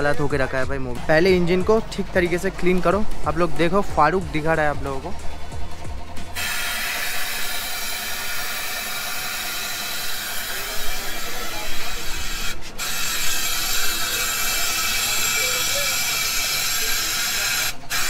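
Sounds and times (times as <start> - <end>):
compressed air hissing: 6.2 - 18.0.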